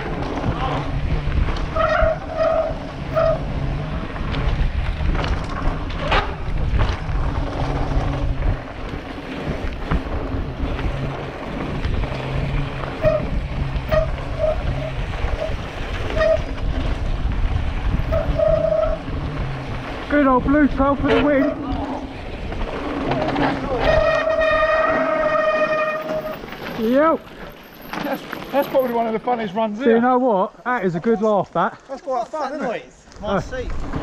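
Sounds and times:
wind buffeting microphone: 0.0 - 26.5
bike knocking and rattling: 0.0 - 29.6, 31.7 - 34.0.

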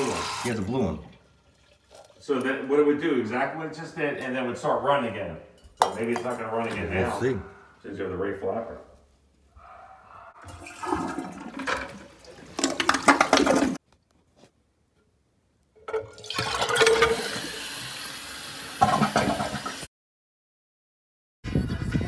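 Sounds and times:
toilet flushing: 0.0 - 2.4, 10.4 - 13.8, 15.9 - 19.9.

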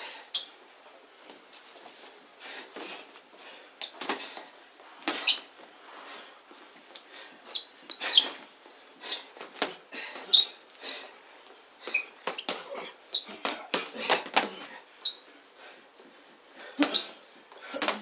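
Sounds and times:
boxing gloves slapping: 3.8 - 5.6, 9.2 - 10.3, 11.8 - 14.8, 16.7 - 18.0.

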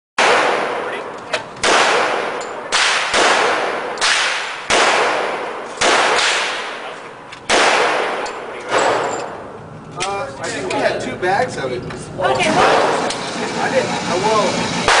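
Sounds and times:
rifle shots echoing indoors: 0.2 - 1.0, 1.6 - 9.4.

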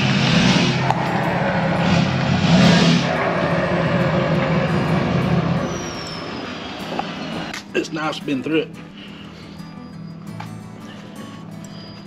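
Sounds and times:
pickup truck engine running: 0.0 - 7.7.

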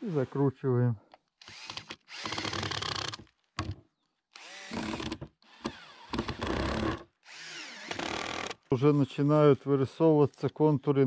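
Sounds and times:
cordless drill driving screws: 1.4 - 3.2, 4.3 - 8.6.

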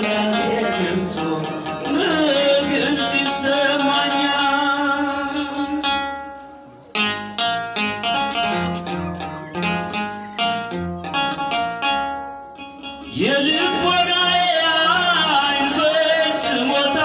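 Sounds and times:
person singing a hymn: 0.0 - 6.2, 13.1 - 17.0
plucked string notes: 0.0 - 17.0.

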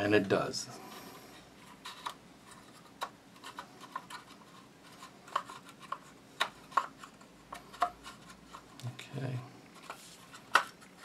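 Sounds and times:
rubbing of rifle parts: 9.8 - 11.0.

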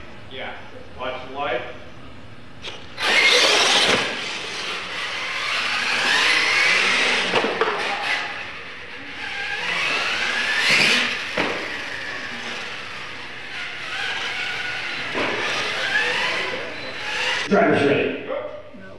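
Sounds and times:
toy truck motors whining: 2.6 - 17.5.

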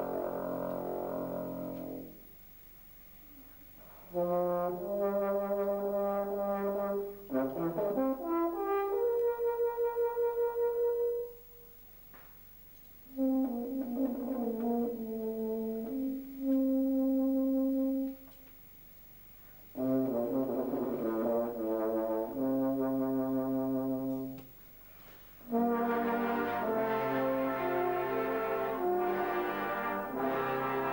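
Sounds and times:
euphonium solo: 0.0 - 2.2, 25.5 - 30.9
brass band accompaniment: 0.0 - 2.3, 3.8 - 11.6, 13.1 - 18.4, 19.6 - 24.6, 25.3 - 30.9.

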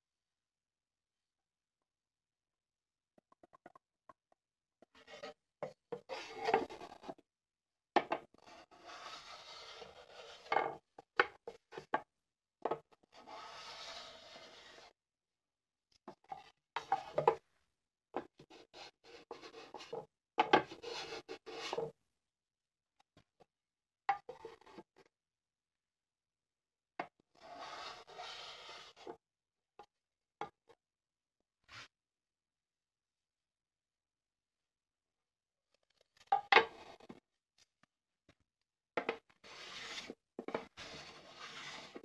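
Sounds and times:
hand plane scraping wood: 5.0 - 6.9, 8.5 - 10.5, 13.2 - 14.9, 20.8 - 21.9, 27.4 - 29.1, 39.5 - 42.0.

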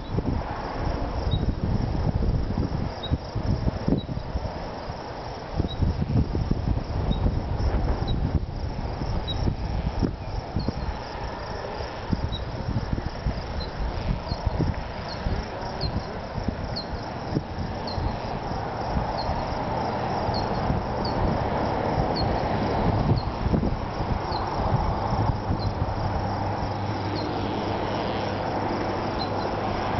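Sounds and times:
insect chirping: 0.0 - 29.9
storm wind buffeting microphone: 0.0 - 29.9.

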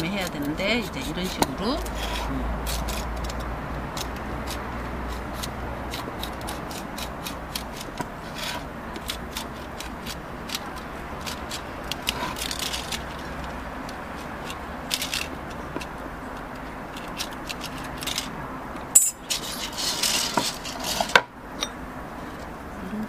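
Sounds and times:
knife scraping foil: 0.2 - 13.3, 19.0 - 21.2.

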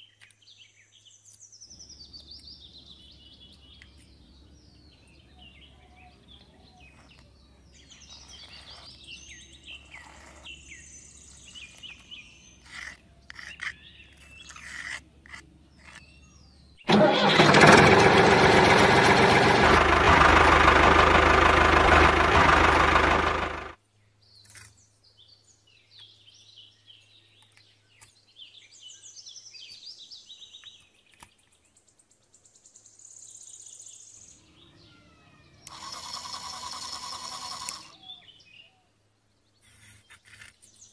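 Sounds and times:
birds chirping: 0.0 - 17.4, 22.1 - 40.9
loud steady motor: 16.9 - 23.8, 35.6 - 38.0.

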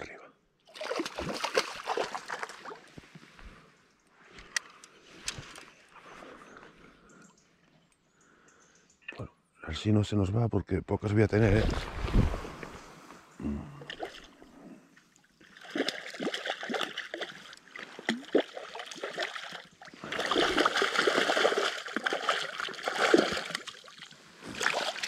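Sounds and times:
water splashing and sloshing: 0.7 - 3.7, 11.4 - 25.0.

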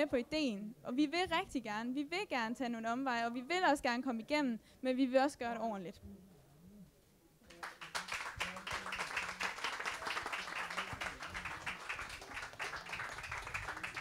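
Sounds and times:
audience applauding: 7.5 - 14.0.

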